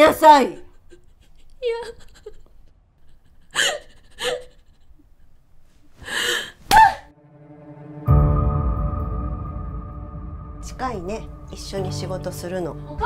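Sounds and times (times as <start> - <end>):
woman gasping and breathing: 6.0 - 7.1
dramatic music: 7.1 - 13.0.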